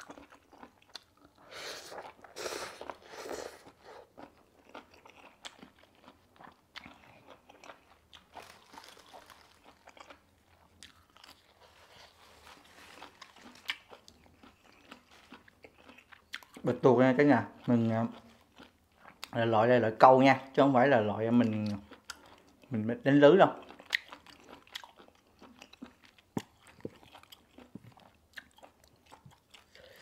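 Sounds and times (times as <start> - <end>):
chewing with mouth clicks: 0.0 - 16.8, 17.4 - 19.4, 21.3 - 22.8, 23.5 - 30.0
slurping noodles: 1.4 - 4.2.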